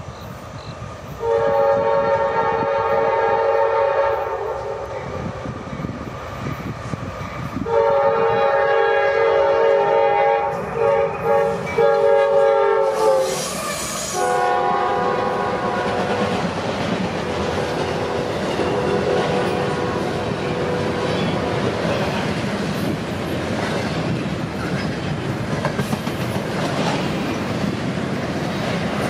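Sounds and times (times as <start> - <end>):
locomotive air horn blast: 1.2 - 5.2, 7.6 - 16.3, 18.0 - 21.1
rolling clatter of freight cars: 13.7 - 29.0.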